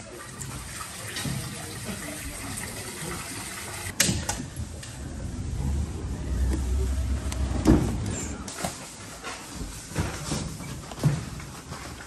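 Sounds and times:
water running and splashing: 0.0s - 3.9s.

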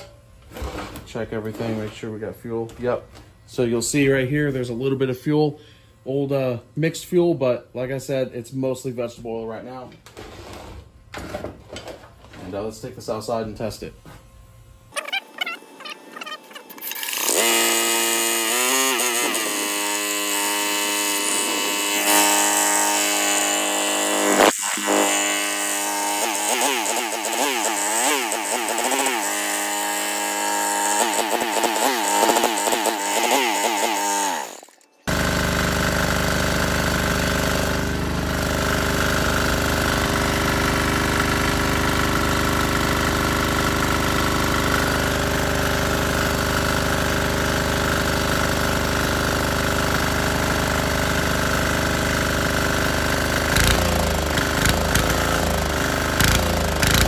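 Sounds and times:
electric drill whining: 14.9s - 57.0s
diesel engine running: 35.1s - 57.0s.

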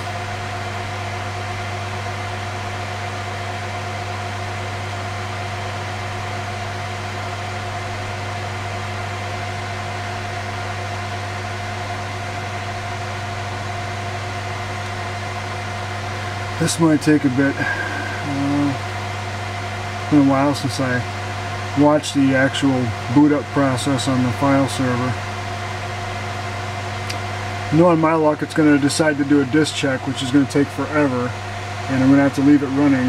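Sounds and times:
hard drives humming: 0.0s - 33.0s.

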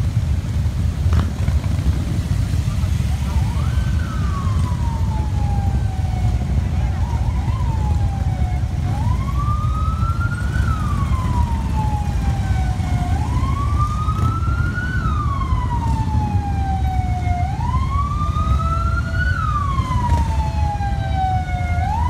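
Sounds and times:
motorcycles rumbling past: 1.0s - 5.0s
siren wailing: 2.8s - 22.0s.

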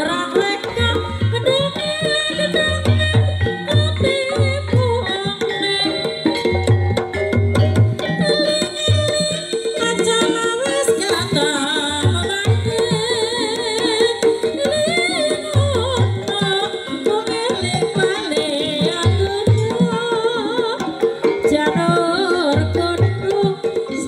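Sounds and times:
ringing gamelan tone: 3.4s - 10.4s.

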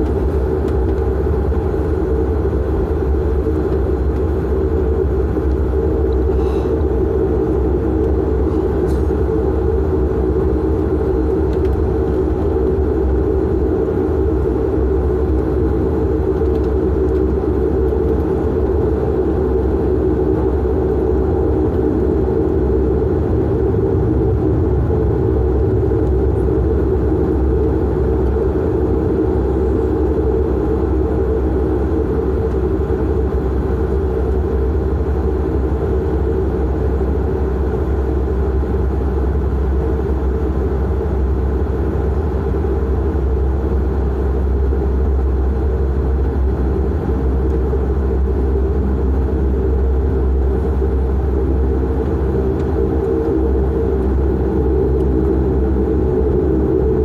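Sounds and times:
turboprop engines droning: 0.0s - 57.0s.

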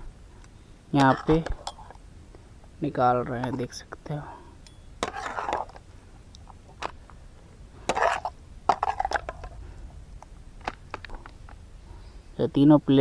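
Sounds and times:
metal spatula scraping pan: 5.0s - 5.8s.

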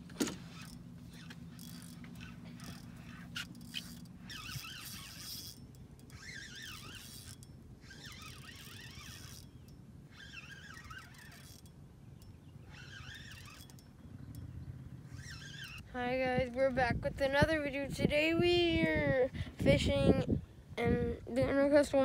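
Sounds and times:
fishing reel gears whining: 0.0s - 16.0s.

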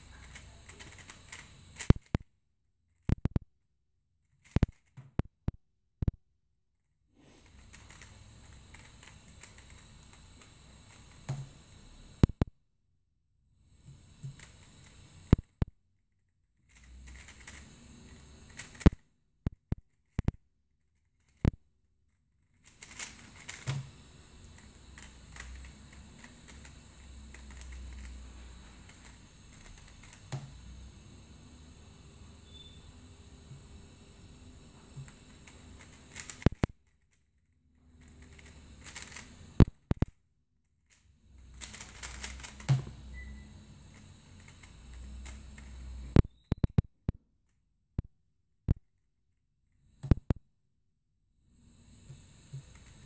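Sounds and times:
steady hiss: 0.0s - 2.1s, 22.6s - 36.6s, 51.6s - 53.0s
puzzle cube layers clicking: 0.0s - 2.2s, 4.4s - 5.2s, 7.4s - 12.4s, 16.7s - 19.0s, 22.5s - 28.2s, 35.0s - 37.0s, 38.0s - 40.1s, 41.5s - 43.0s.

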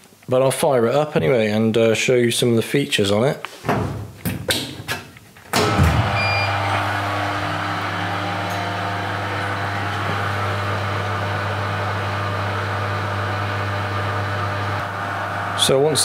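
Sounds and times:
electrical hum: 5.1s - 16.0s
machine switching on clunk: 5.5s - 11.2s
short beep: 6.1s - 6.7s.

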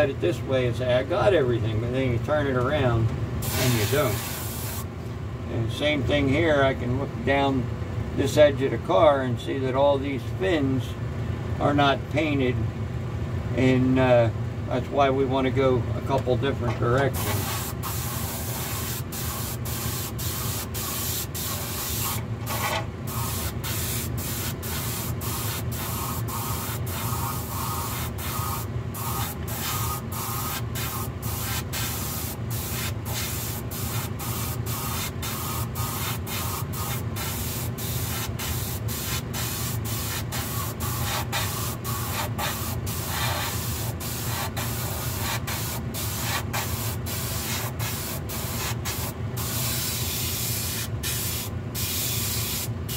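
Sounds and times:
exhaust fan humming: 0.0s - 52.9s
airbrush hissing: 3.4s - 4.9s, 17.2s - 52.9s.

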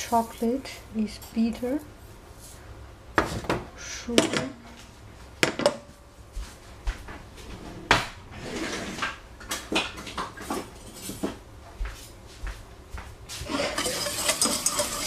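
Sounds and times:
kitchen items knocking and clattering: 3.2s - 4.6s, 5.4s - 5.9s, 9.0s - 11.4s, 13.4s - 15.0s.

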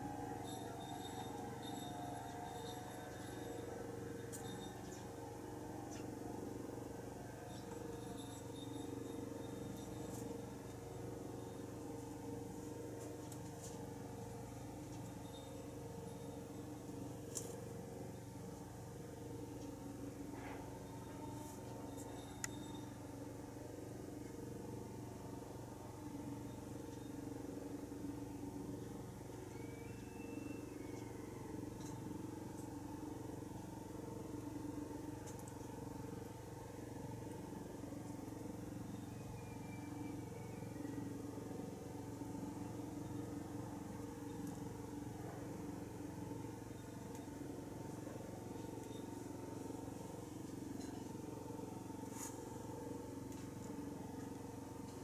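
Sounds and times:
low mechanical hum: 0.0s - 55.0s
faint short high chirp: 29.5s - 31.1s.

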